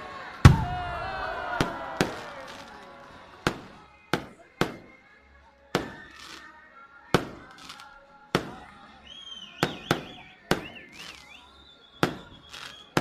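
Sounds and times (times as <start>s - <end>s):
fireworks bangs: 0.3s - 5.0s, 5.7s - 6.5s, 7.1s - 8.8s, 9.4s - 13.0s
high wavering whistle: 9.0s - 13.0s.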